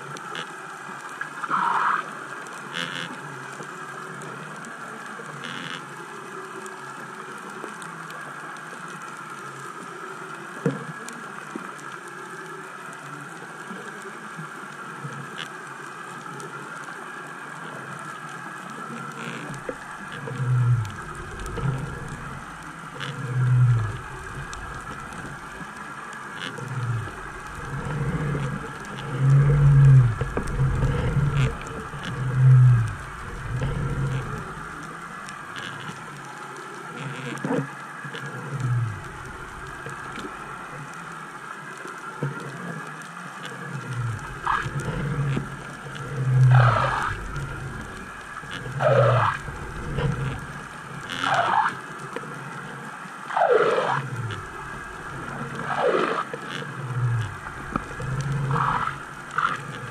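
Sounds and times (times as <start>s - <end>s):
steady underwater hiss: 0.0s - 59.9s
low rumbling surges: 20.5s - 34.9s.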